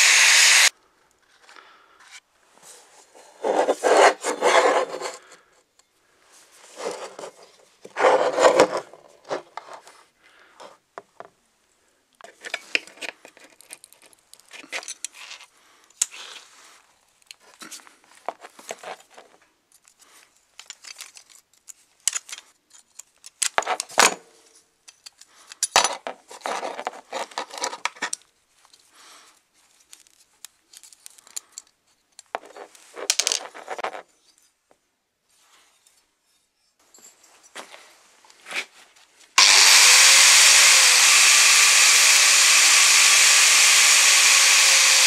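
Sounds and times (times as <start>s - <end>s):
metal pieces clinking and scraping: 12.4s - 15.5s, 20.6s - 24.0s, 29.8s - 34.0s.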